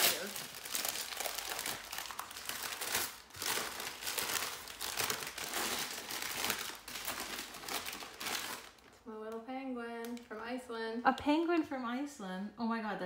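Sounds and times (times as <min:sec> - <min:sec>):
paper wrapping crinkling: 0:00.0 - 0:09.0.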